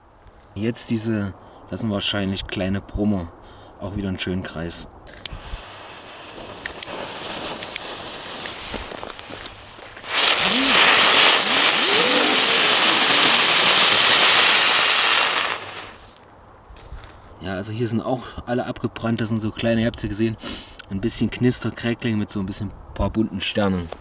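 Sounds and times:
ground fireworks crackling and hissing: 3.3s - 16.3s.

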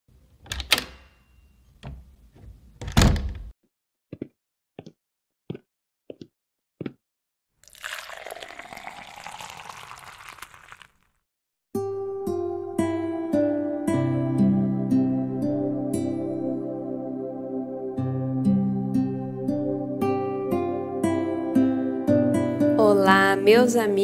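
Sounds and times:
liquid pouring into cup: 7.6s - 11.1s.

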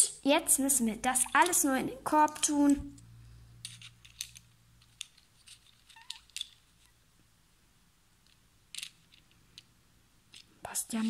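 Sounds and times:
plastic toy pieces clicking: 3.6s - 6.9s, 8.2s - 9.7s.

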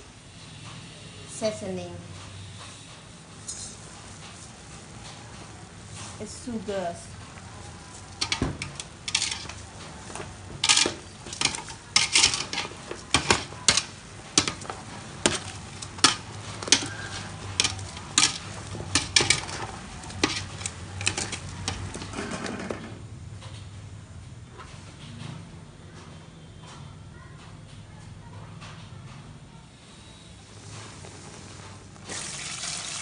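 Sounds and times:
metal ladle clinking in a pot: 8.2s - 9.6s, 10.6s - 22.1s.

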